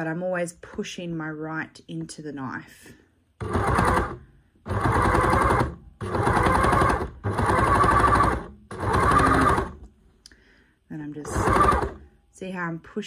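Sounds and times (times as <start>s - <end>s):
overlocker running: 3.4s - 9.9s, 11.2s - 12.0s.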